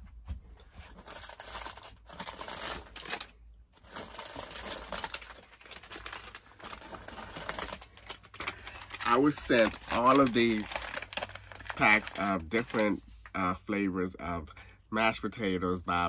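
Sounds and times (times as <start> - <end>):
foil pouches crinkling: 0.8 - 13.4.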